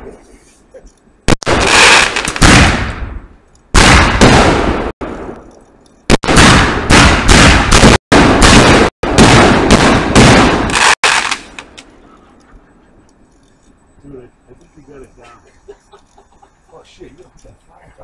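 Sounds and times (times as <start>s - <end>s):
fireworks booming and bursting: 1.2s - 5.5s, 6.1s - 11.8s.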